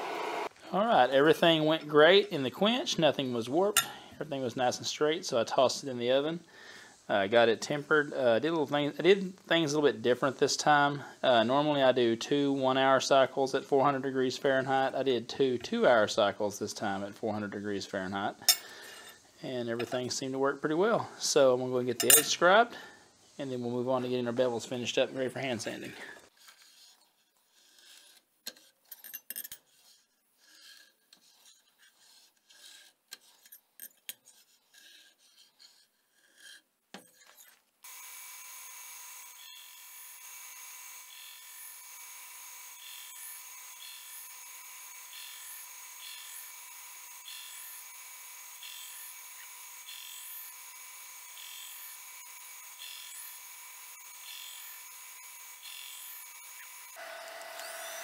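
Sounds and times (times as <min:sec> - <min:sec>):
steel scribe scraping blade: 0:29.5 - 0:37.6
belt grinder whining: 0:37.8 - 0:58.0.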